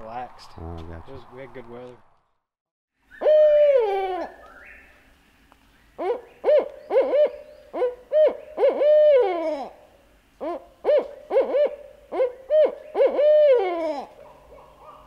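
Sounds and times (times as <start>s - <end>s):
owl hooting: 3.1s - 4.9s, 6.0s - 9.8s, 10.4s - 15.0s.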